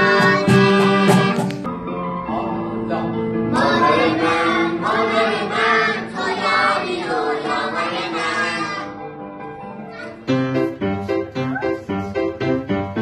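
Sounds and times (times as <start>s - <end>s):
children singing together: 0.0s - 1.6s, 3.5s - 9.0s.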